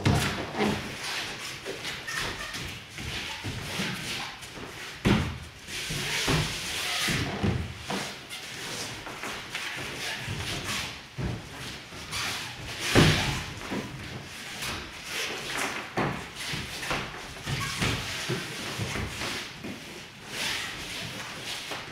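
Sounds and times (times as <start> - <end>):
bodies thudding onto foam mats: 4.6 - 8.2, 12.7 - 14.9.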